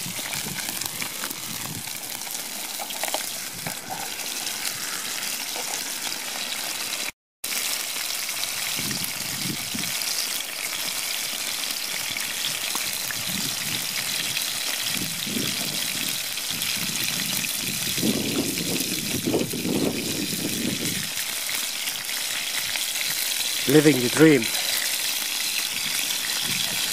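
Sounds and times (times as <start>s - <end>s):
steak sizzling in a pan: 0.0s - 26.9s.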